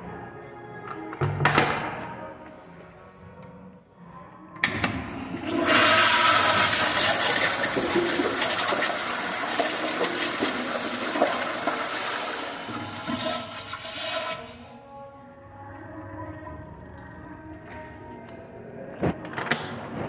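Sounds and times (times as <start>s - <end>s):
toilet flushing water rush: 5.2s - 14.6s.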